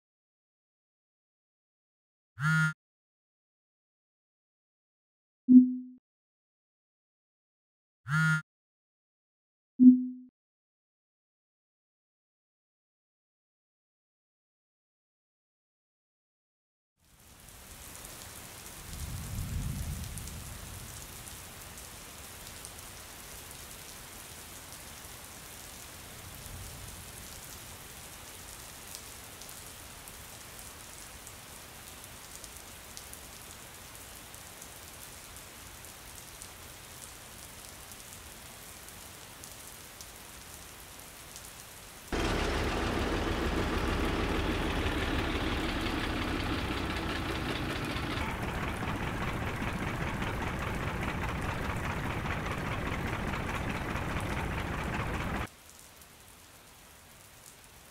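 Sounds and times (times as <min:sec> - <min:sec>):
steady rain falling: 0:17.0 - 0:57.9
low rumbles of thunder: 0:18.9 - 0:21.2, 0:47.2 - 0:55.5
vehicle engine running: 0:42.2 - 0:55.5.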